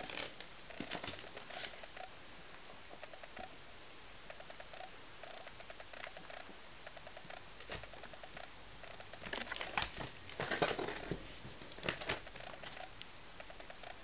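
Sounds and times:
rabbits chewing ticks: 0.0 - 14.0
rustling and scuffling: 9.2 - 12.8.

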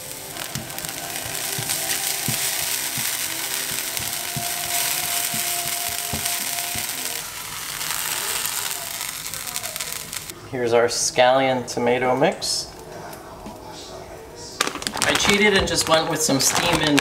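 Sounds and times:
scallions sizzling in hot oil: 0.0 - 10.3, 14.6 - 17.0.

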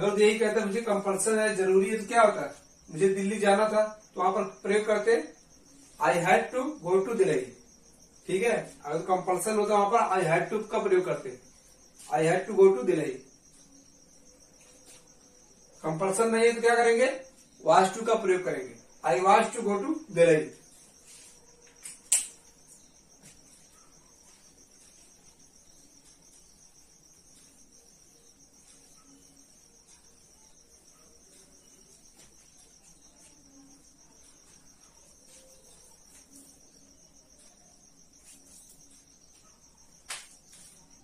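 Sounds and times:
cricket trilling: 0.0 - 41.0
sharp click: 21.8 - 22.4.

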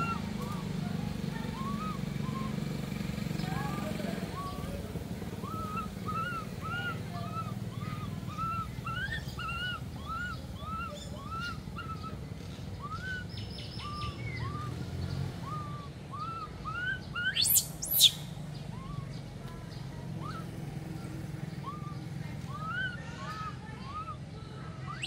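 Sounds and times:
monkey squeaking calls: 0.0 - 2.7, 3.4 - 14.7, 15.4 - 19.0, 21.6 - 24.1
monkey shrill shrieks: 5.4 - 12.0, 16.3 - 18.2.

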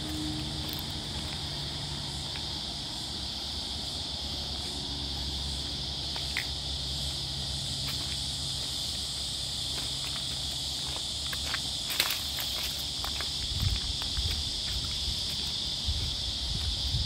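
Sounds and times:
insect chorus drone: 0.0 - 17.0.

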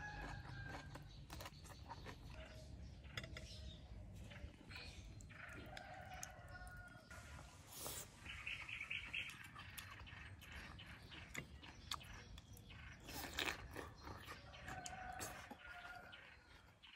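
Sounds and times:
person chewing crunchy food: 0.0 - 2.4, 9.2 - 16.8
bird chirping: 7.8 - 16.9.

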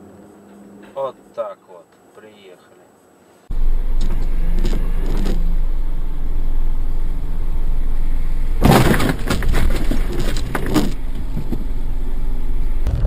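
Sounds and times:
loud rough noise: 3.5 - 11.8, 12.4 - 13.0
car road and engine rumble: 3.5 - 13.0.

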